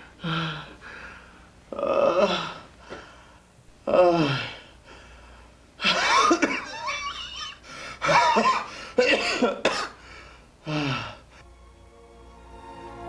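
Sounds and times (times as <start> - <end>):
man groaning: 1.7 - 2.6, 3.8 - 4.7
man coughing: 5.8 - 10.0.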